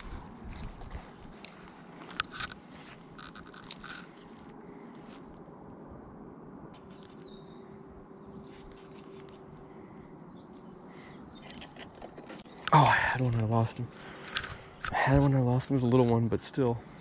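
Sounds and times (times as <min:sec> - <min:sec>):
low steady hum: 0:00.0 - 0:17.0
small birds chirping: 0:06.5 - 0:16.2.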